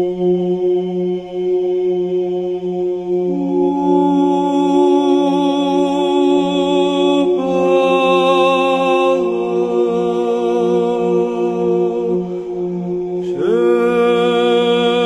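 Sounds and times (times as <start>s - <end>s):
slow chanting: 0.0s - 15.0s
low drone: 3.4s - 15.0s.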